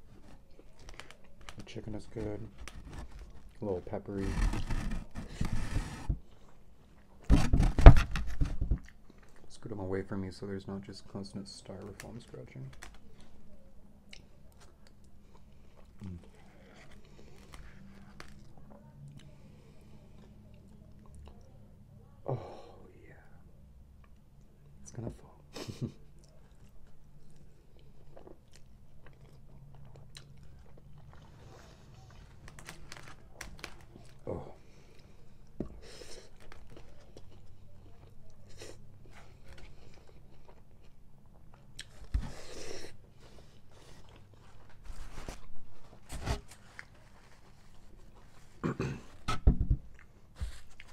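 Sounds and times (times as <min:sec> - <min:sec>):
plastic fork scraping container: 0:04.2 - 0:06.1
chewing with wet mouth sounds: 0:26.2 - 0:32.4
chewing: 0:26.2 - 0:34.2, 0:36.3 - 0:42.1.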